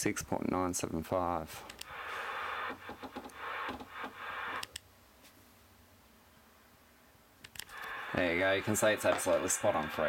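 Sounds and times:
radio static hiss: 1.5 - 4.8, 7.6 - 10.0.

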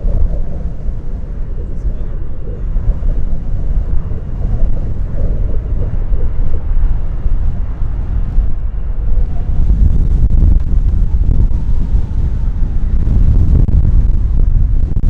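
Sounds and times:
jet engines rumbling: 0.0 - 15.0
wind buffeting microphone: 0.0 - 15.0.

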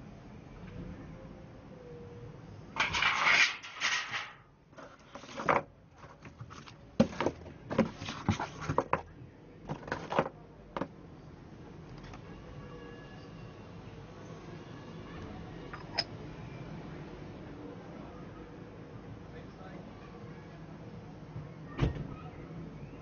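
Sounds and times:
cardboard box rustling: 4.8 - 9.0.

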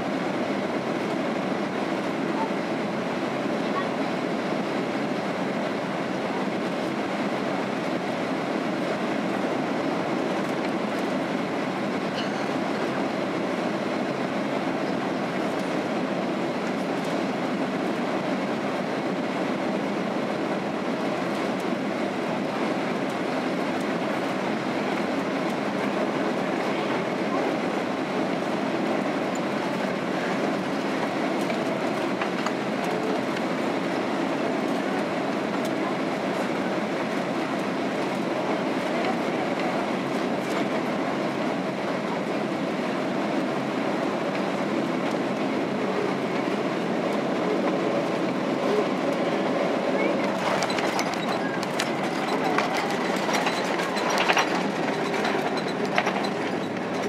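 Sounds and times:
airliner cabin noise: 0.0 - 57.0.

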